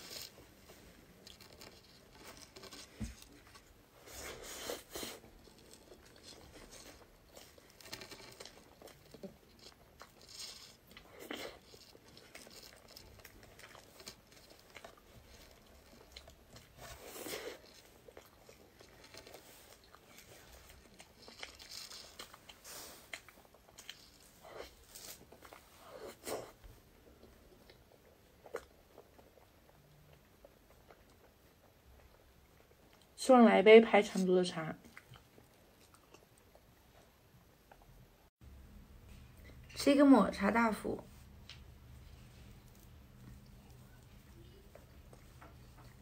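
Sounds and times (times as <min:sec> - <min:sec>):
chewing and wet mouth sounds: 0:00.0 - 0:33.2, 0:34.1 - 0:38.2, 0:41.1 - 0:46.0
small clicks and smacks: 0:41.4 - 0:41.7.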